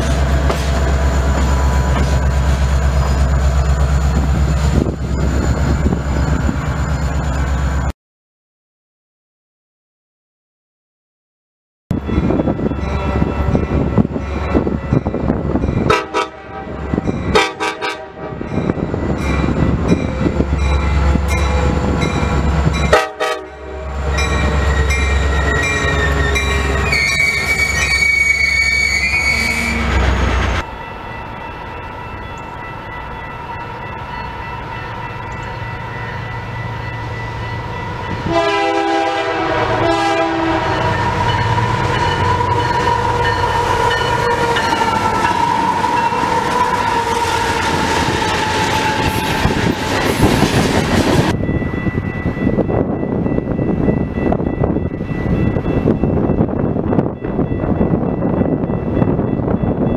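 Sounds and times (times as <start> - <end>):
freight train approaching: 0.0 - 7.9, 11.9 - 59.9
train horn blasts: 15.8 - 18.7, 22.8 - 24.6, 38.2 - 44.6
wheel squeal: 24.6 - 30.0.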